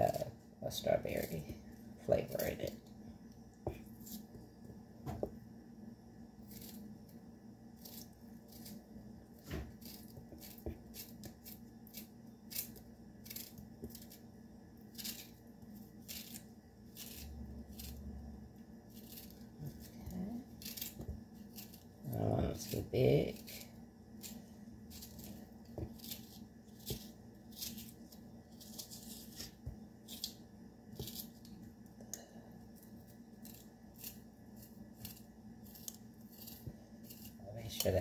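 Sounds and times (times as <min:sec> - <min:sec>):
faint steady hum: 0:00.0 - 0:38.0
knife cutting strawberries: 0:07.7 - 0:38.0.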